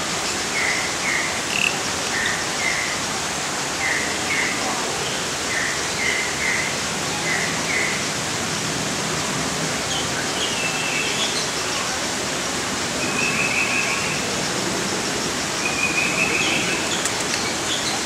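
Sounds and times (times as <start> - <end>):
hissing rush of noise: 0.0 - 18.0
bird chirps: 15.6 - 18.0.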